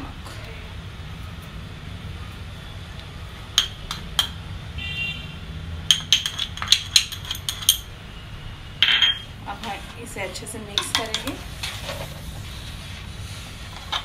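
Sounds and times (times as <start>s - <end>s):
spoon clinking glass bowl: 8.8s - 9.3s.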